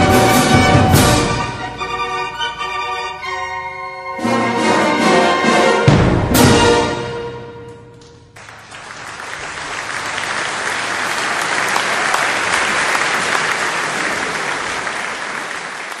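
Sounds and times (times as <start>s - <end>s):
audience applause: 8.4s - 16.0s.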